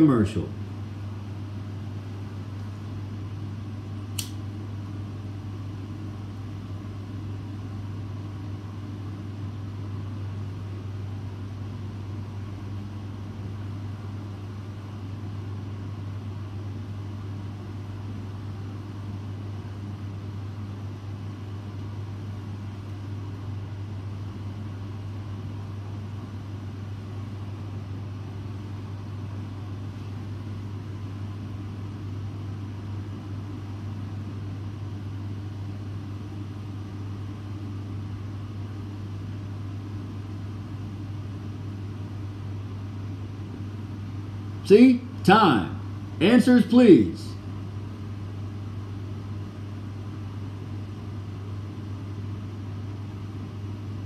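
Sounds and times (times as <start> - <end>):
ventilation fan humming: 0.0 - 54.0
short sharp click: 4.2 - 4.4.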